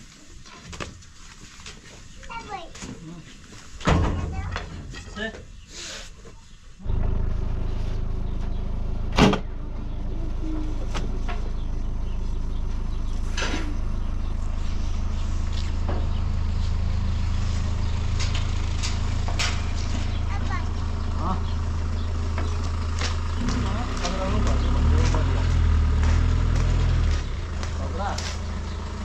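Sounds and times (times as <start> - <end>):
engine idling: 6.8 - 29.0.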